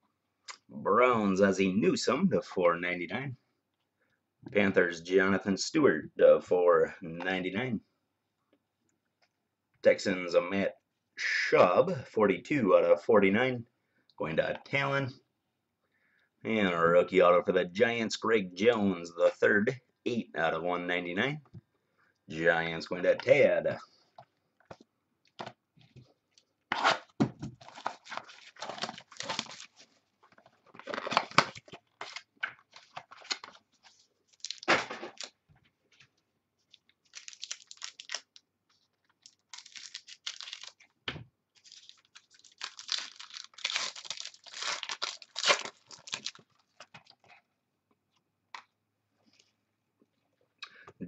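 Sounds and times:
plastic packaging crinkling and tearing: 26.7 - 35.4, 36.7 - 40.9, 41.6 - 47.4.

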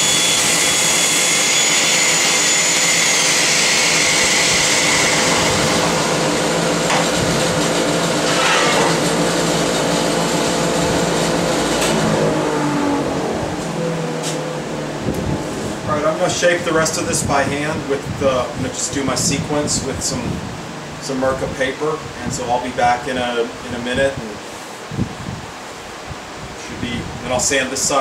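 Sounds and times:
orbital sander whining: 0.0 - 15.9
dust collector rushing: 0.0 - 21.3.

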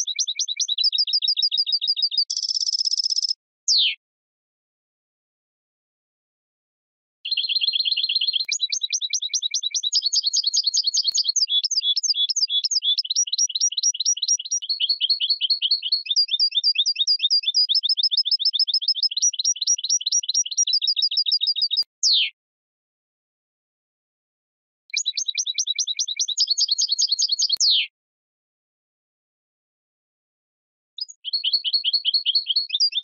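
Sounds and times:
goldfinch singing: 0.0 - 4.0, 7.3 - 22.3, 24.9 - 27.8, 31.0 - 33.0.

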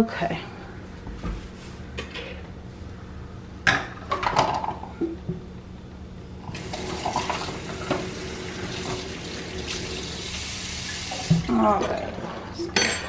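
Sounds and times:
plastic cups clattering into sink: 6.5 - 9.1
tap water running into sink: 6.5 - 11.5.

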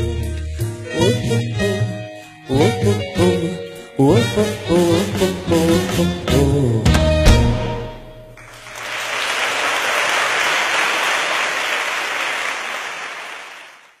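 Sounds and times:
audience applauding: 8.4 - 14.0.

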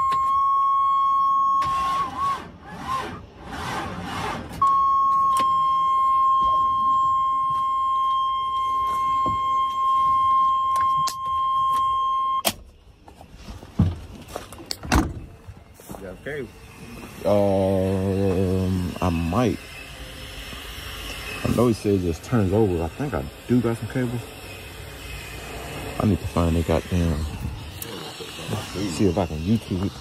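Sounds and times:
high electronic warning tone: 0.0 - 2.3, 4.6 - 12.5, 16.0 - 20.2, 20.9 - 30.0.

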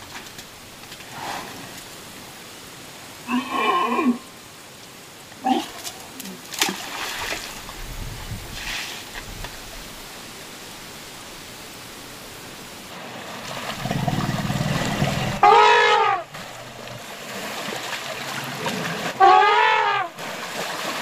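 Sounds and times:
water sloshing: 5.6 - 10.2, 12.8 - 19.4, 20.1 - 21.0
elephants trumpeting: 13.7 - 17.0, 18.7 - 20.2.

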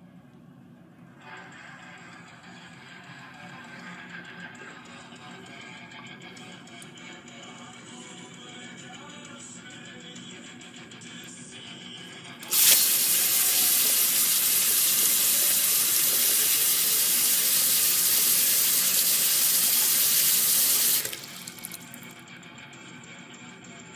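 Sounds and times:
tap water running into sink: 12.4 - 22.1.

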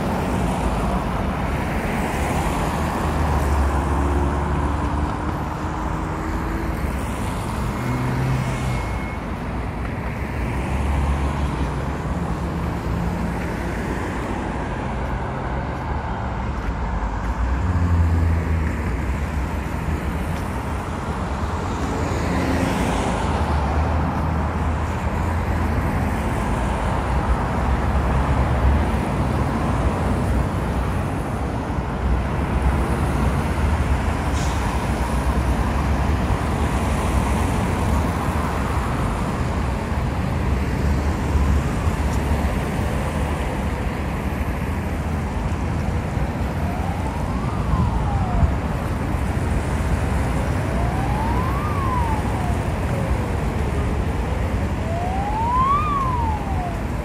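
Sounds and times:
dense city traffic: 0.0 - 57.0
emergency vehicle siren wailing: 45.7 - 57.0.

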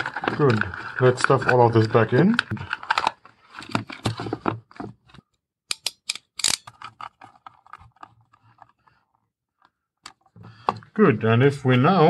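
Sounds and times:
hands rustling and scraping wires: 0.0 - 5.3, 6.7 - 10.4.

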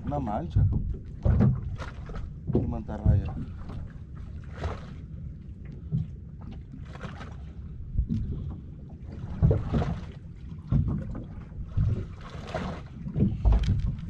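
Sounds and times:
low thumps: 0.0 - 1.8, 2.4 - 3.8, 13.1 - 14.0
wind buffeting microphone: 0.0 - 3.9, 7.6 - 12.2, 12.9 - 14.0
water against boat hull: 0.0 - 14.0.

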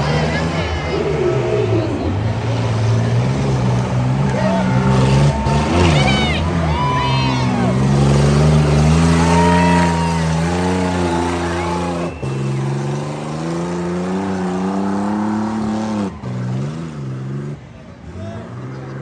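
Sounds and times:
truck engine revving: 0.0 - 19.0.

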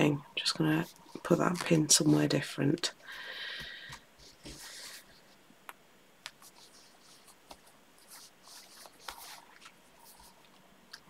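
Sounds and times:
fabric rustling: 3.9 - 5.4, 6.4 - 10.6.

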